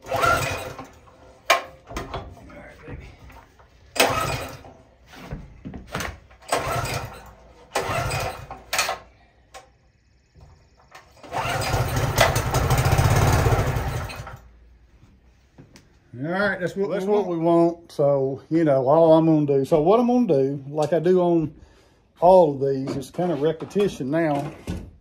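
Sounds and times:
small engine running: 0:00.0 - 0:01.2, 0:11.1 - 0:14.4
recoil starter pulls: 0:00.0 - 0:02.4, 0:03.3 - 0:04.8, 0:06.3 - 0:09.8, 0:10.7 - 0:14.5.

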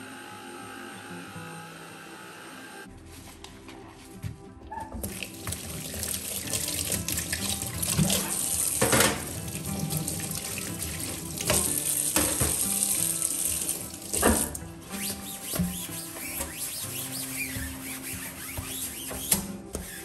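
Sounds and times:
tap running into steel sink: 0:06.5 - 0:13.1, 0:14.1 - 0:14.6
sponge and cloths squeezed out: 0:14.0 - 0:20.0.

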